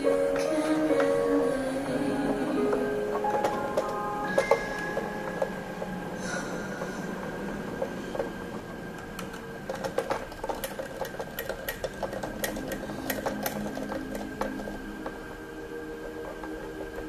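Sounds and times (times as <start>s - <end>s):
steady hum: 0.0s - 17.0s
screwdriver clicking on screw: 9.2s - 15.2s.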